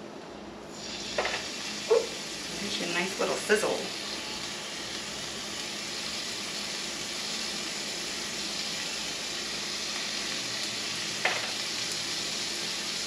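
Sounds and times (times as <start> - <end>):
fish sizzling in frying pan: 0.7 - 13.0
fillet tapping pan: 11.2 - 11.6.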